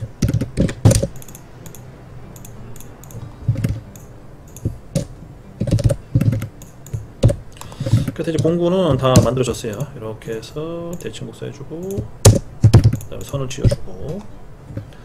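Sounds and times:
computer keyboard typing: 0:00.0 - 0:01.8, 0:11.8 - 0:13.8.

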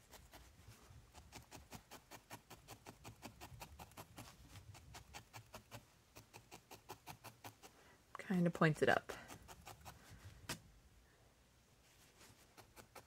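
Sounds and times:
felting needle poking wool: 0:00.0 - 0:10.7, 0:11.8 - 0:13.0.

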